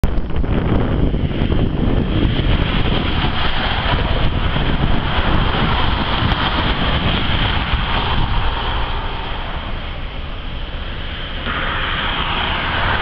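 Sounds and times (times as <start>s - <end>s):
wind buffeting microphone: 0.0s - 13.0s
freight train diesel locomotive: 0.2s - 13.0s.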